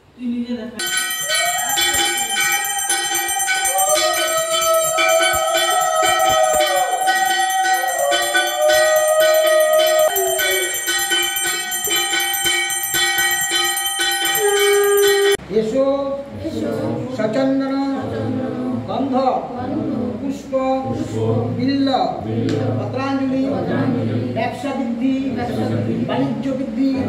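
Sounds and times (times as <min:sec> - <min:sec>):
hand bell ringing rapidly: 0:00.8 - 0:15.4
long sliding tones: 0:00.8 - 0:15.4.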